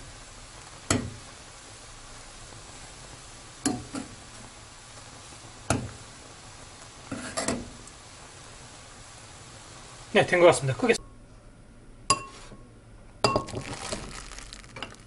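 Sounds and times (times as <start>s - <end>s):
boiling liquid bubbling: 0.0s - 11.0s, 11.9s - 15.0s.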